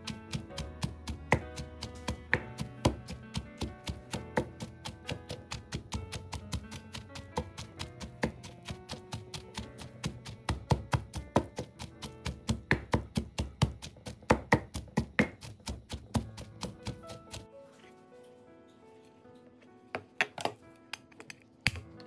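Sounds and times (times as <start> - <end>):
pestle pounding in clay mortar: 0.0 - 17.5
background music: 0.0 - 22.0.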